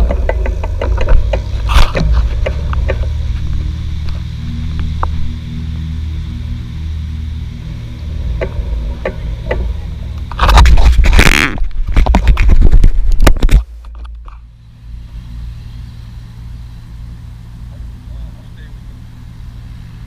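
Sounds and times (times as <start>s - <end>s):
scraping and rustling against camera: 0.0s - 5.2s, 9.5s - 14.5s
wind rumble on microphone: 0.0s - 20.0s.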